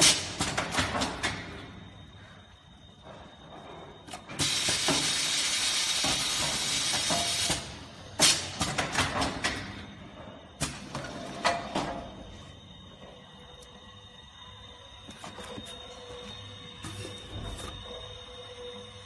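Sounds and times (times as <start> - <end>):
machine hissing: 3.5 - 9.7.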